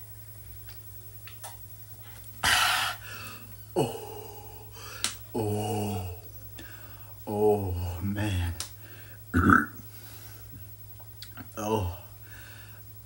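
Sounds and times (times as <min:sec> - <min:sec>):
man groaning: 0:03.7 - 0:06.3, 0:11.5 - 0:12.1.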